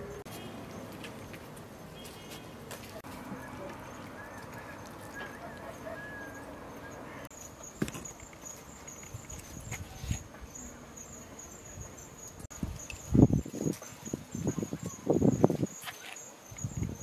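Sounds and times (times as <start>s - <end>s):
insects chirping in pulsing trill: 3.8s - 17.0s.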